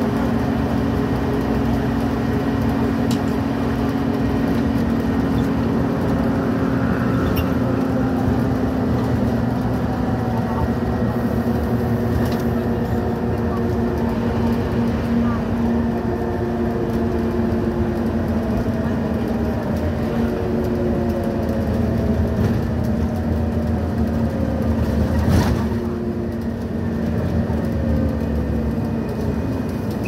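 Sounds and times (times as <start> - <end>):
bus engine droning: 0.0 - 30.0.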